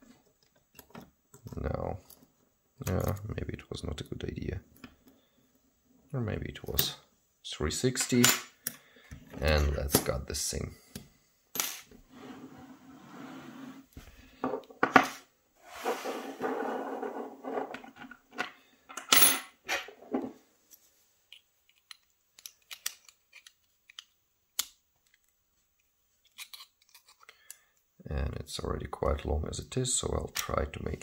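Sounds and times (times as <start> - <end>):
small metallic clicks: 21.3 - 25.4.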